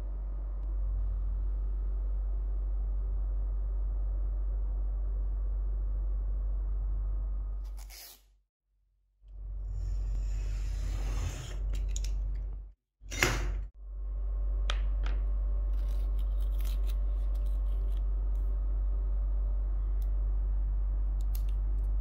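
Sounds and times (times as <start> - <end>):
steady low hum: 0.0 - 7.6, 9.2 - 22.0
utility knife scraping along ruler: 9.7 - 11.8.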